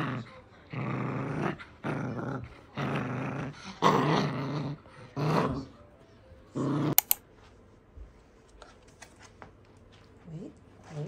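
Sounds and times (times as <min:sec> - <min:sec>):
puppy growling: 0:00.0 - 0:05.8, 0:06.5 - 0:07.1.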